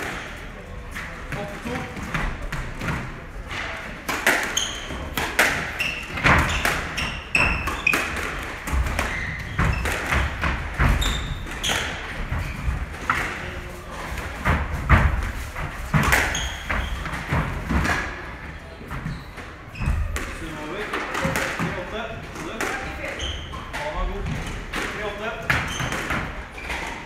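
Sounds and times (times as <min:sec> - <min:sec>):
squash ball hits: 0:01.3 - 0:18.2
shoes squeaking on hardwood: 0:05.8 - 0:12.8, 0:16.0 - 0:17.5, 0:18.8 - 0:20.4, 0:25.5 - 0:27.0.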